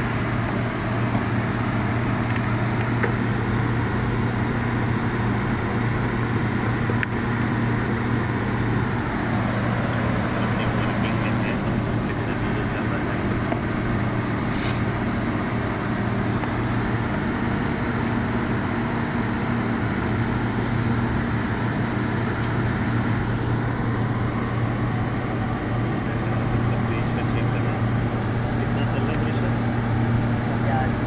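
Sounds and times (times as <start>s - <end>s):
air conditioner unit humming: 0.0s - 31.0s
short hiss: 14.5s - 14.9s.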